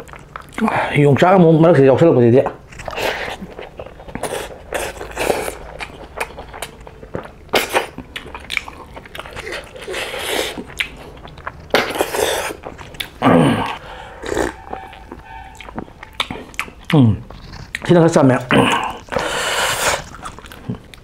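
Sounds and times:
chewing: 0.0 - 0.8, 2.4 - 21.0
wet slurping: 7.5 - 15.0, 18.8 - 20.8.

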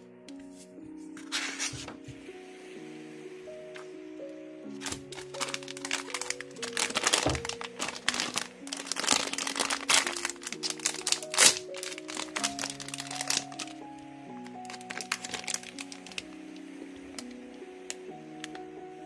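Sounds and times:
music of slow held chords: 0.0 - 19.0
plastic wrapper crinkling: 4.8 - 18.6.

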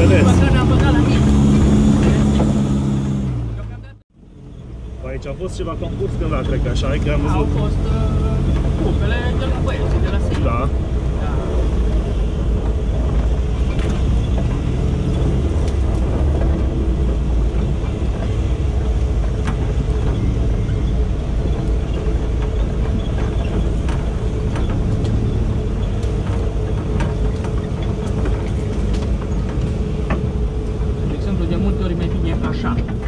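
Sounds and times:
vehicle engine rumble: 0.0 - 33.0
sharp clicks and knocks: 11.6 - 31.2.

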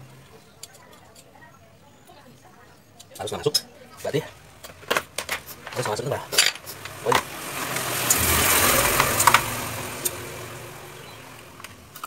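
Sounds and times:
compressor humming: 4.0 - 12.0.

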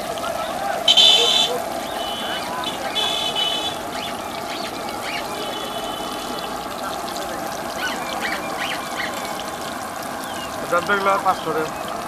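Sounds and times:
hot oil sizzling: 0.0 - 12.0
short high-pitched calls: 0.9 - 6.1.

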